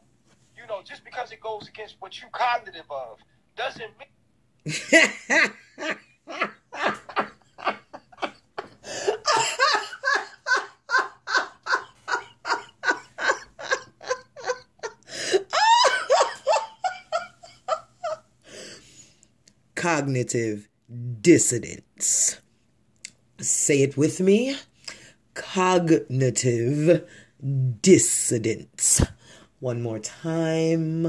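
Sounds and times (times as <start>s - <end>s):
person laughing: 4.7s - 18.2s.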